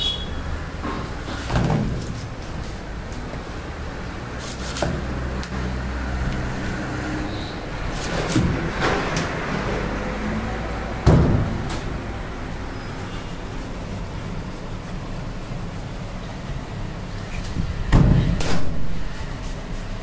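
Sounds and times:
heavy thump: 11.0s - 11.9s.

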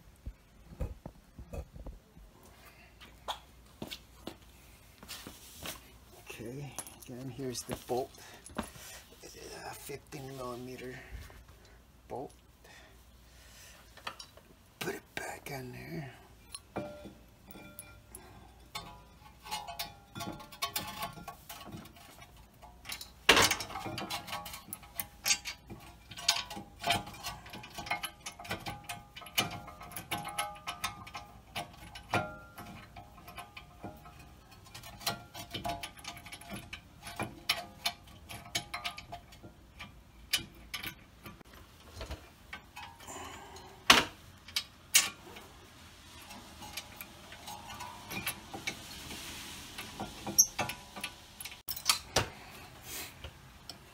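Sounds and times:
metallic clicks of brake hardware: 16.4s - 43.1s, 43.8s - 45.2s.

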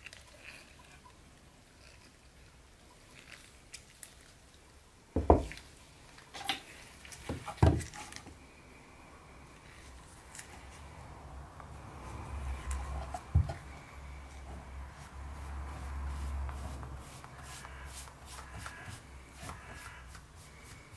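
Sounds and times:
knocks on concrete floor: 5.2s - 5.5s.

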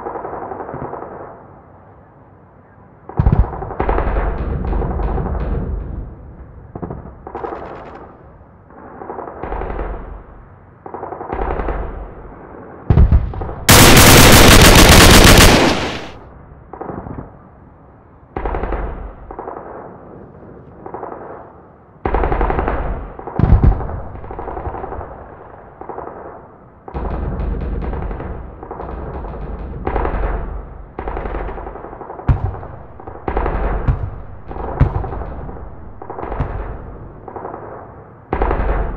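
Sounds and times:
automatic gunfire bursts: 13.7s - 16.2s.

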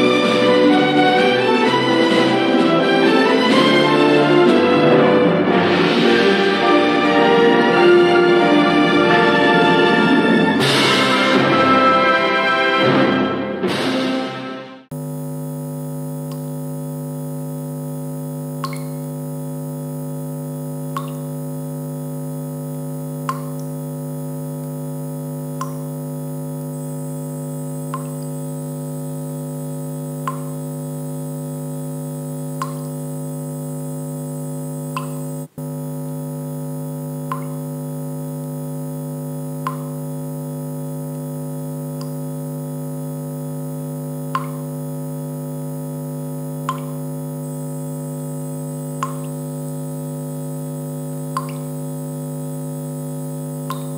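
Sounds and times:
electronic drone of held tones: 0.0s - 12.8s, 14.9s - 53.9s
soft electronic blip: 18.6s - 19.1s, 20.9s - 21.3s, 23.2s - 23.7s, 25.6s - 25.9s, 27.8s - 28.4s, 30.2s - 30.6s, 32.6s - 33.0s, 34.8s - 35.5s, 37.3s - 37.6s, 39.6s - 40.0s, 44.3s - 44.7s, 46.6s - 47.0s, 49.0s - 49.4s, 51.3s - 51.8s, 53.6s - 53.9s.

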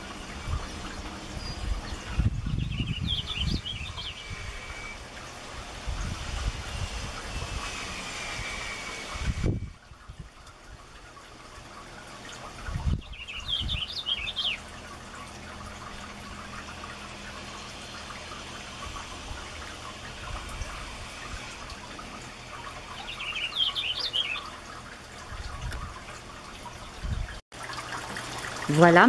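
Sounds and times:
finch warbled song: 0.0s - 5.0s, 12.9s - 14.8s, 22.5s - 25.7s.

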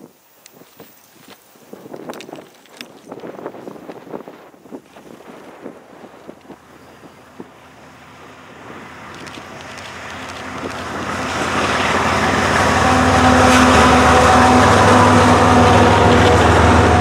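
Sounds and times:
freight cars rolling on rails: 4.9s - 17.0s
diesel locomotive rumble: 5.8s - 17.0s.

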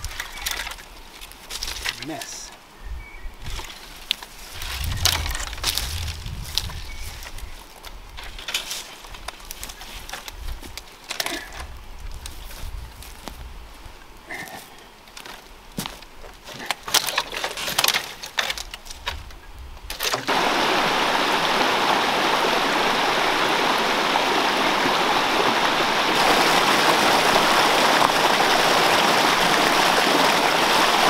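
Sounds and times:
creek splashing over rocks: 0.0s - 1.4s, 20.2s - 31.0s
twigs crackling and snapping: 0.0s - 2.3s, 3.4s - 13.4s, 15.1s - 20.3s.

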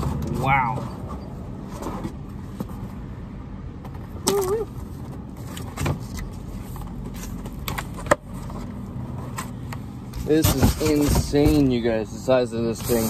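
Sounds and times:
low rumble of traffic: 0.0s - 13.0s
cardboard box knocks and scrapes: 10.2s - 11.7s.

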